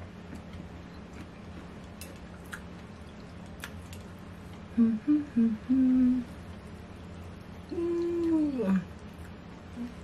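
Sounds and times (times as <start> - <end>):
woman humming: 4.7 - 6.4, 7.6 - 8.9, 9.7 - 10.0.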